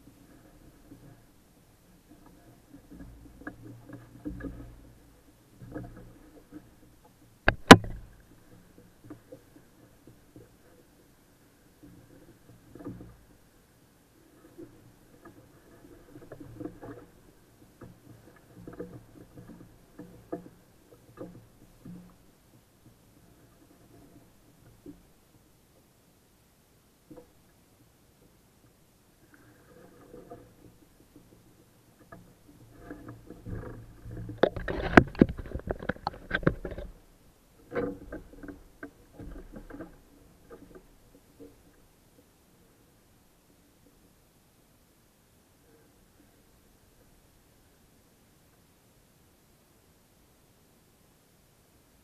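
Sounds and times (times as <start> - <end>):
muffled knocks against boat hull: 7.4 - 9.4.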